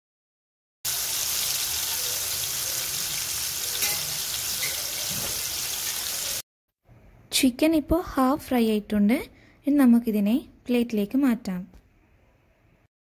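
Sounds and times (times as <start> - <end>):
chicken sizzling in hot oil: 0.9 - 6.4.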